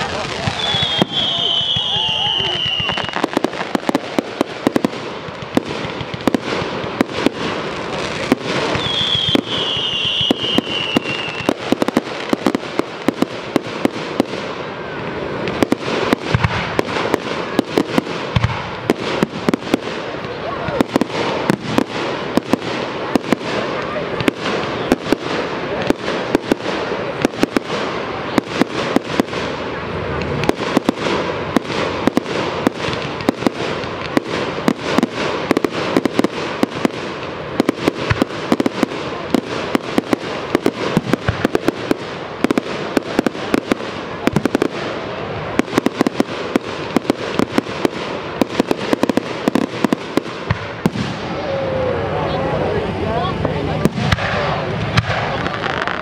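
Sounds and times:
fireworks popping and crackling: 0:00.0 - 0:56.0.

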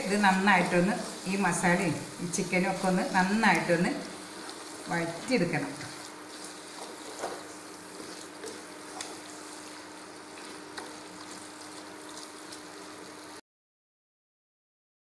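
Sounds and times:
meat sizzling in a pot: 0:00.0 - 0:13.4
wooden spatula scraping and knocking: 0:05.9 - 0:09.2.

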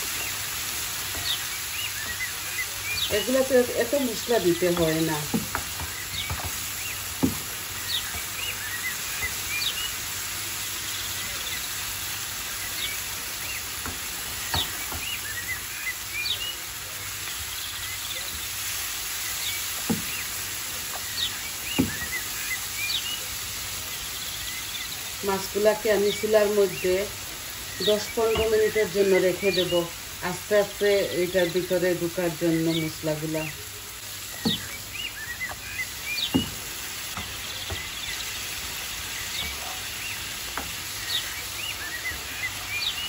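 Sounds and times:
onions sizzling in oil: 0:00.0 - 0:43.0
wooden spoon knocking on pan: 0:01.1 - 0:01.4, 0:04.5 - 0:08.3, 0:13.8 - 0:15.3, 0:19.8 - 0:20.3, 0:21.8 - 0:22.2, 0:28.3 - 0:28.8, 0:34.3 - 0:34.8, 0:35.4 - 0:38.0.

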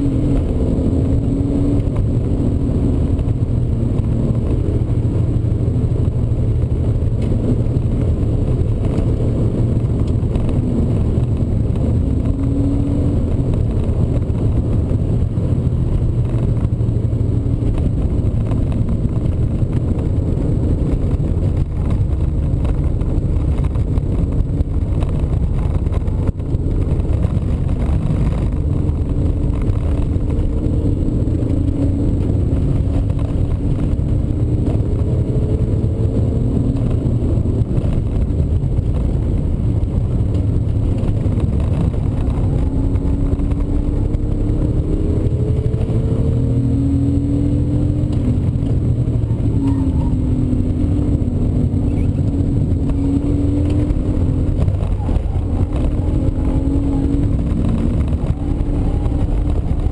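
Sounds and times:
car engine running: 0:00.0 - 0:59.9
road noise inside a car: 0:00.0 - 0:59.9.

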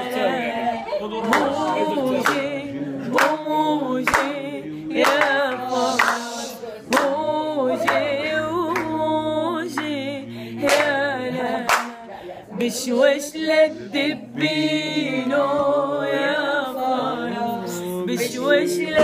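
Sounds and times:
woman and man singing: 0:00.0 - 0:19.0
hand claps: 0:01.3 - 0:04.4, 0:05.0 - 0:07.2, 0:10.6 - 0:11.0, 0:11.6 - 0:12.0.

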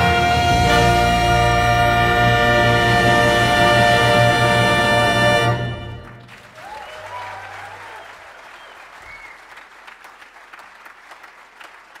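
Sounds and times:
audience applauding: 0:05.5 - 0:12.0
people cheering: 0:06.1 - 0:12.0.

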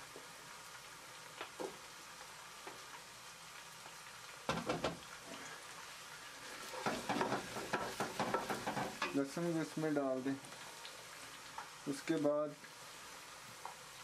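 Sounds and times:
onions and garlic sizzling in oil: 0:00.0 - 0:14.0
crackling and knocks: 0:04.4 - 0:05.1, 0:06.8 - 0:09.2.

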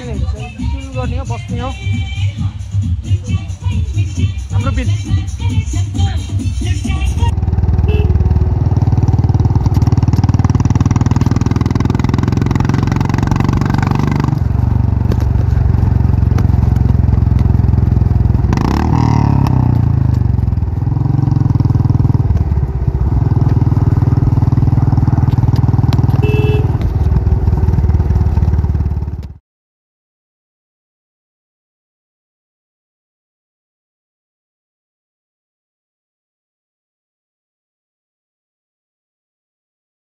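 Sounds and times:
motorcycle engine rumbling: 0:00.0 - 0:29.4.

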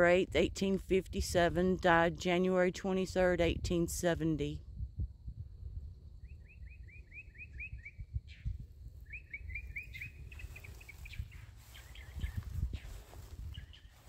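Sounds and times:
low rumble: 0:04.6 - 0:06.3
songbird singing: 0:06.2 - 0:14.0.

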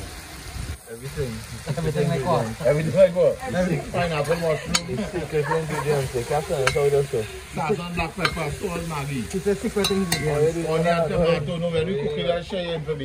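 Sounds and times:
food sizzling in a pot: 0:00.0 - 0:13.0
voices talking: 0:00.8 - 0:13.0
spoon knocking against pot: 0:08.2 - 0:08.6, 0:09.8 - 0:10.4.

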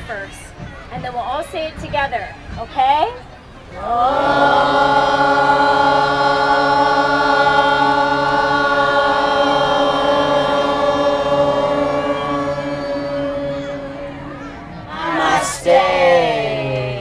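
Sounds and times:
person chanting om: 0:03.8 - 0:17.0.

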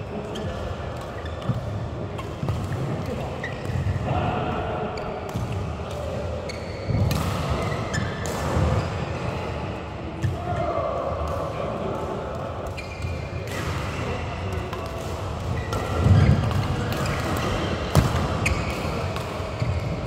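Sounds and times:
sneakers squeaking on court: 0:00.3 - 0:04.0, 0:06.4 - 0:09.1, 0:12.7 - 0:13.6, 0:15.5 - 0:20.0
racket hitting shuttlecock: 0:05.1 - 0:08.9, 0:11.2 - 0:20.0.

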